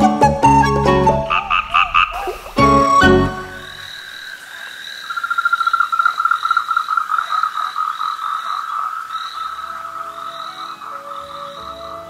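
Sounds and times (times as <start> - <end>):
frog pulsed trill: 1.2 - 7.4
higher frog call: 1.2 - 12.0
faint background music: 9.6 - 12.0.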